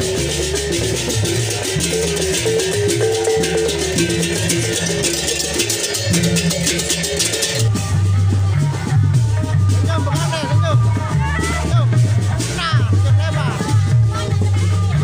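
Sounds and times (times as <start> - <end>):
hand cymbals clashing: 0.0 - 7.8
large barrel drum: 0.0 - 15.0
small kettle gongs melody: 0.4 - 7.7.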